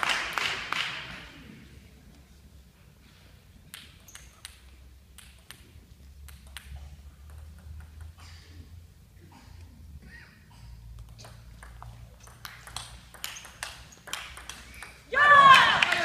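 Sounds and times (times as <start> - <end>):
low hum of hall: 0.0 - 16.0
table tennis ball bouncing: 3.7 - 8.2, 11.0 - 15.1.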